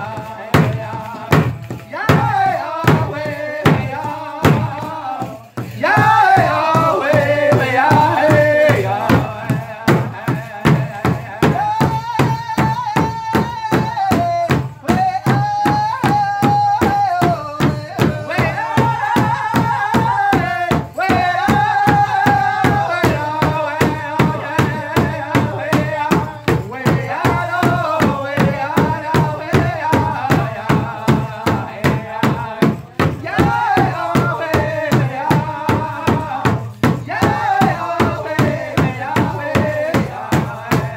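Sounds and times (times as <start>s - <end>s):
group singing high-pitched: 0.0s - 40.9s
large drum beating: 0.0s - 40.9s.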